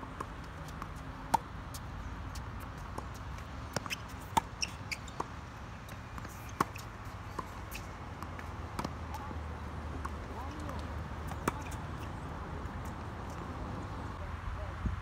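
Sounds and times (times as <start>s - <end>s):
tennis ball bouncing: 0.2s - 13.8s
tennis racket hitting ball: 6.0s - 12.1s.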